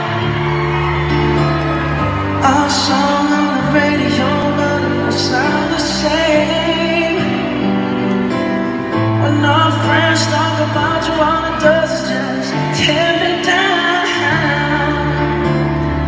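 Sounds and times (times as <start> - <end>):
held chords and bass notes: 0.0 - 16.0
person singing: 0.0 - 16.0.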